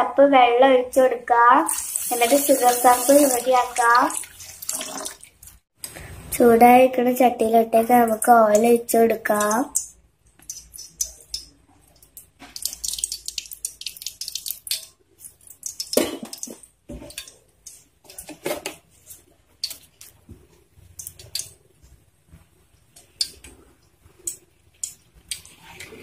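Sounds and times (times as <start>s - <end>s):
hot pan crackling: 1.7s - 5.6s, 9.2s - 18.3s.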